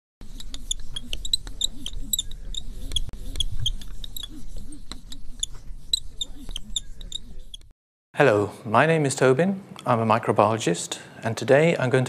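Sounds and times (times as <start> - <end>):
marker squeaking on a whiteboard: 0.2 - 7.7.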